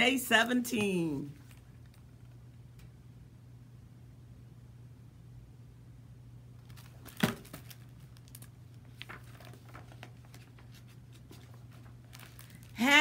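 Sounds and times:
book pages rustling: 0:06.7 - 0:12.8.

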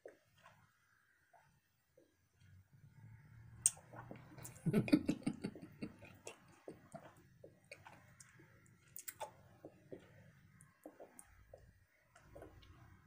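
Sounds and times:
mouth chewing bubble gum: 0:03.6 - 0:12.8.

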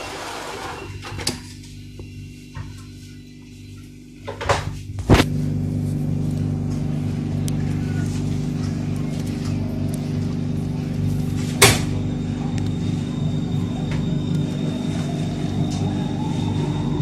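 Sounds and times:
train electric hum: 0:00.0 - 0:17.0
train motor whine rising: 0:05.0 - 0:17.0.

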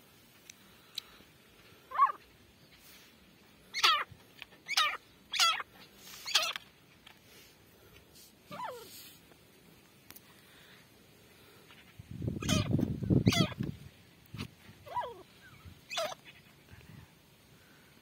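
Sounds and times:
francolin harsh wavering calls: 0:01.9 - 0:02.2, 0:03.6 - 0:06.6, 0:11.7 - 0:13.7, 0:14.8 - 0:16.6.

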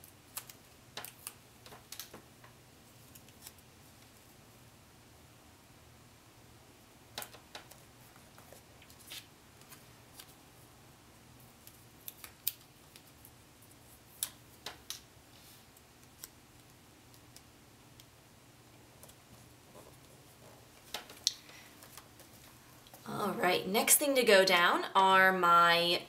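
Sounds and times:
paper stickers clicking and crinkling: 0:00.0 - 0:04.2, 0:07.2 - 0:10.4, 0:11.4 - 0:15.0, 0:15.7 - 0:18.1, 0:18.7 - 0:23.0.

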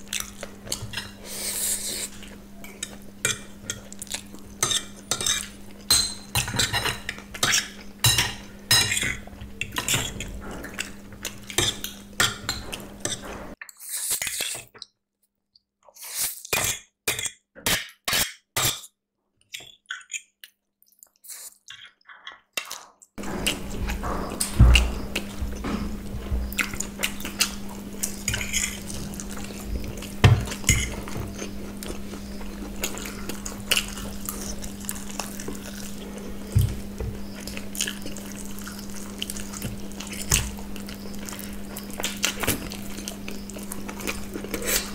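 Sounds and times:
eating noises: 0:15.9 - 0:44.9.

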